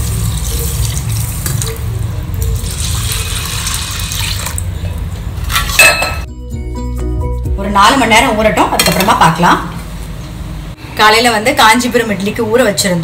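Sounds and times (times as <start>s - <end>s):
water pouring and splashing: 2.7s - 4.7s.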